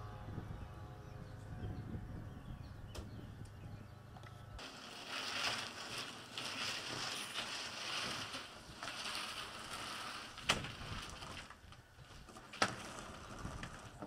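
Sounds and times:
plastic hose rustling and scraping: 4.6s - 14.0s.

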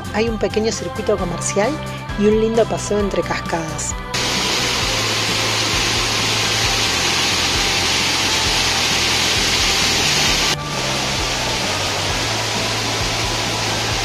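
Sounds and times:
waterfall rushing and splashing: 4.2s - 14.0s.

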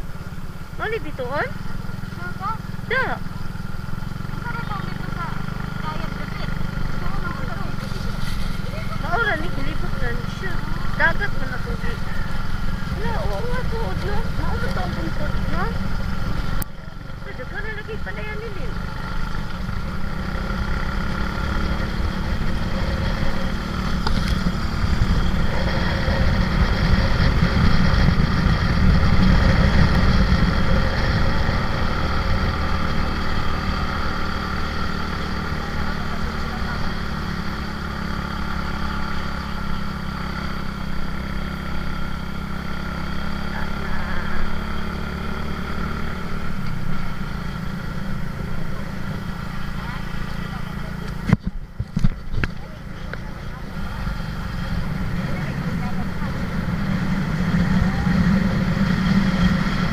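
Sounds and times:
motorcycle engine running: 0.0s - 59.9s
wind rumble on microphone: 24.0s - 32.7s.

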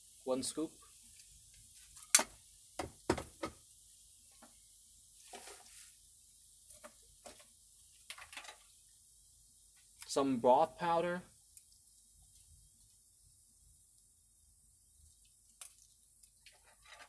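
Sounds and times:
soft rustle: 5.1s - 7.5s.

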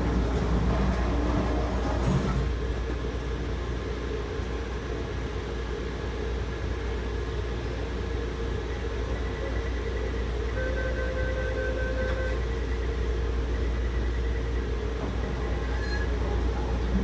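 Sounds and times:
train equipment low hum: 0.0s - 17.0s.

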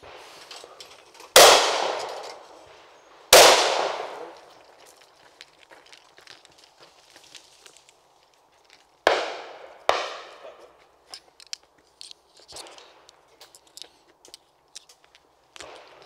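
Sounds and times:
shotgun shots echoing: 1.4s - 2.6s, 3.3s - 4.5s, 9.1s - 10.5s.

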